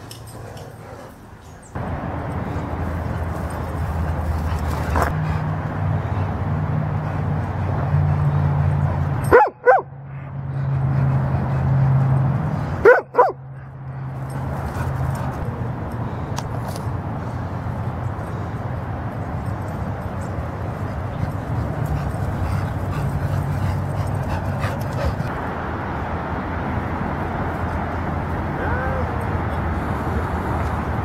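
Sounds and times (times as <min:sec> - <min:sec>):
dog barking: 0:09.3 - 0:10.2, 0:12.8 - 0:13.8.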